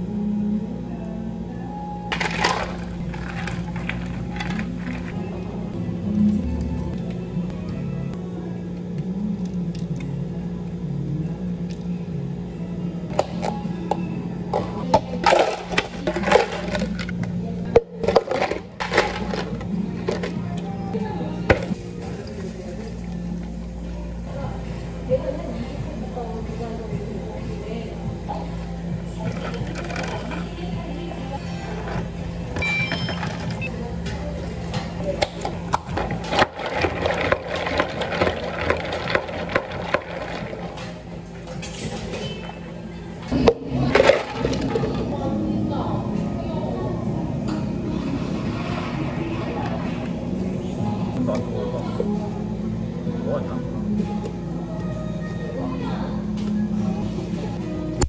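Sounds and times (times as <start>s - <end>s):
steady low hum: 0.0s - 58.0s
ice cubes clattering in plastic cups: 2.1s - 5.2s, 15.2s - 17.1s, 18.0s - 20.3s, 35.8s - 40.8s, 43.4s - 45.1s.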